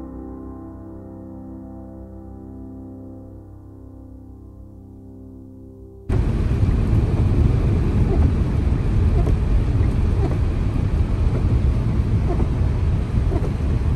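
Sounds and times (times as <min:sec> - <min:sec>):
wind buffeting microphone: 0:06.1 - 0:13.9.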